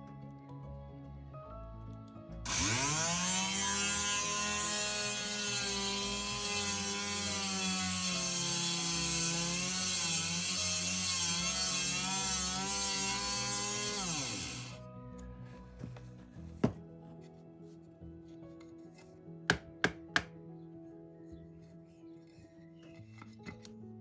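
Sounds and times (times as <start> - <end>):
rotary tool drilling glass: 2.5 - 14.8.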